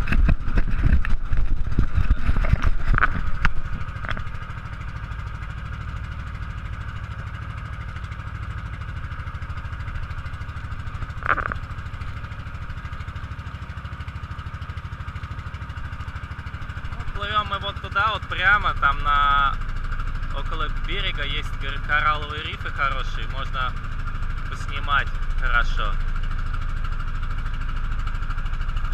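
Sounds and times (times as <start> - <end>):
knocks and bumps: 0.0 - 4.5
motorboat engine droning: 0.0 - 28.9.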